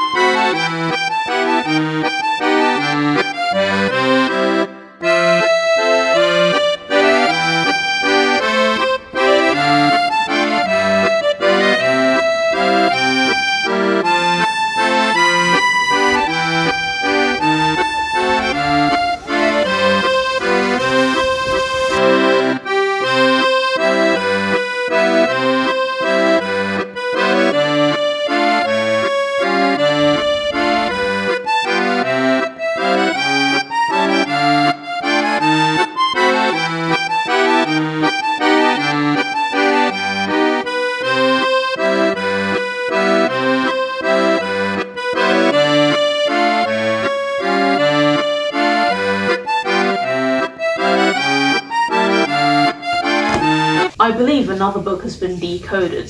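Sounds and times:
accordion melody: 0.0 - 55.9
steady bass beat: 14.8 - 22.3.

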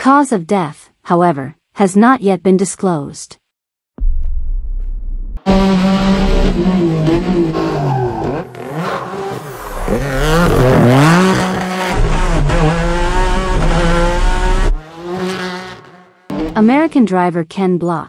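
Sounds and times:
race car engine revving: 5.4 - 16.7.

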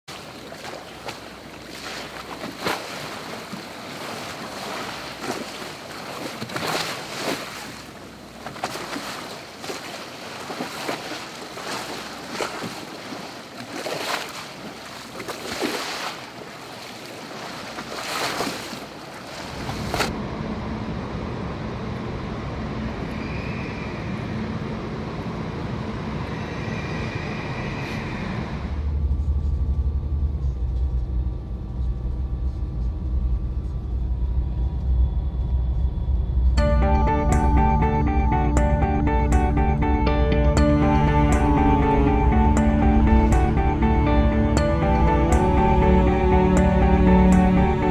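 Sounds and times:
small waves lapping and splashing: 0.1 - 20.2.

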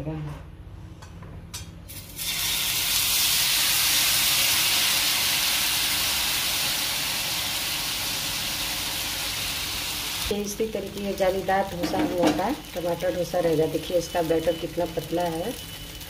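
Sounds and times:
batter sizzling on hot pan: 1.9 - 16.0.

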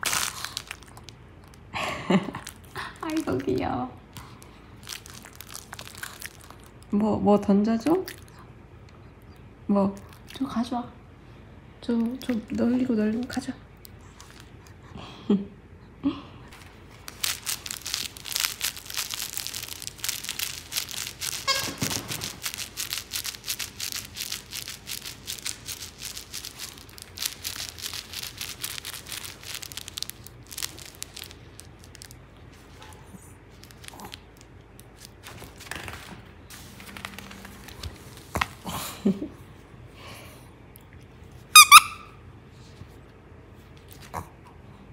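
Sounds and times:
crinkling plush toy: 0.0 - 7.0, 7.8 - 8.4, 10.0 - 10.6, 12.0 - 14.8, 16.5 - 39.3, 41.4 - 42.0
rustles: 16.5 - 38.7
toy squeaks: 21.3 - 21.9, 41.6 - 42.1.

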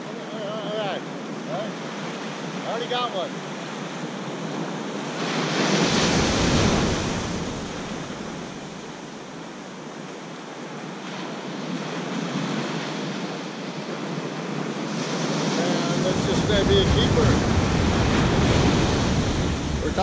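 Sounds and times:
ocean surf breaking on beach: 0.0 - 20.0
wind buffeting microphone: 10.8 - 20.0.

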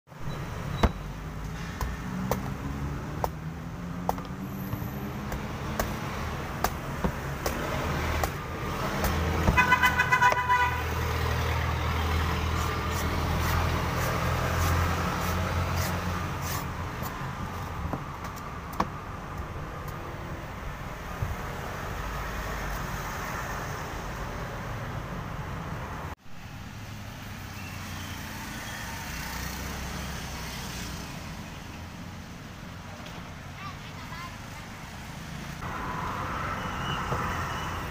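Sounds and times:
street traffic: 0.0 - 37.9
vehicle engine noise: 0.1 - 21.6
cleaver chopping on wooden board: 1.8 - 10.5
car horn honking: 9.4 - 11.0.

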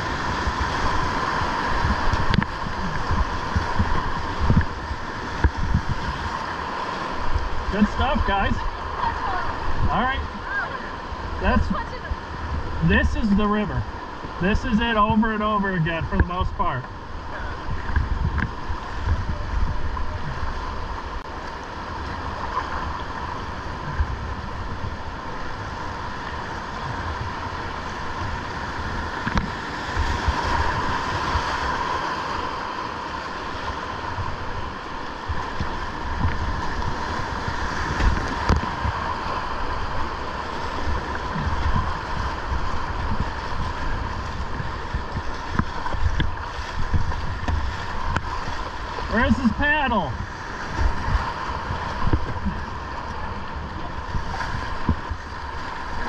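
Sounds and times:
wind buffeting the microphone: 0.0 - 6.6, 17.2 - 21.2, 34.0 - 49.1, 50.1 - 56.0
river rushing through rapids: 18.6 - 56.0.

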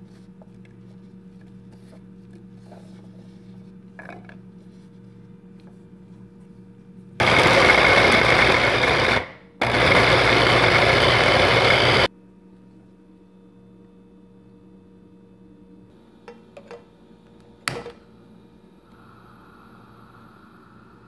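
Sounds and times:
electric food chopper running: 7.2 - 12.1.

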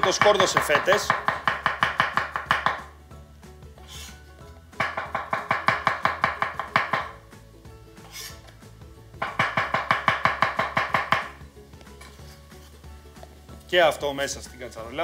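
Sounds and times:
knife tapping on cutting board: 0.0 - 2.9, 4.8 - 7.2, 9.2 - 11.4.

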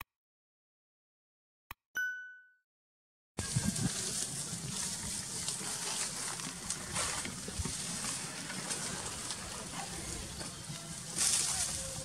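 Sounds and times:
scratching in dry leaf litter: 3.4 - 12.0.

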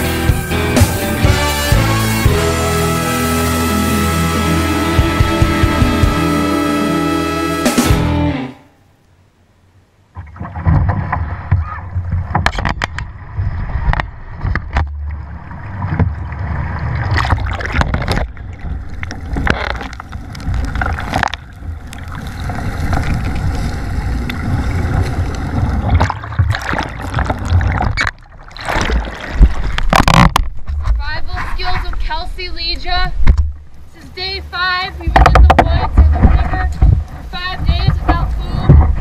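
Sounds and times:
water splashing and gurgling: 10.0 - 39.0.

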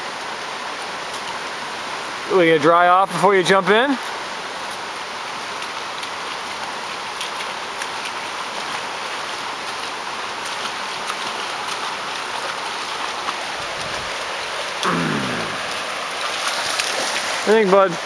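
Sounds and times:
water hissing: 13.5 - 18.0.

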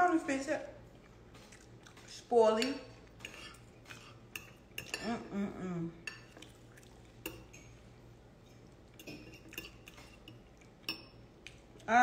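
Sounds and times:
cutlery clinking against dishes: 1.4 - 5.2, 7.2 - 7.8, 9.0 - 11.2.

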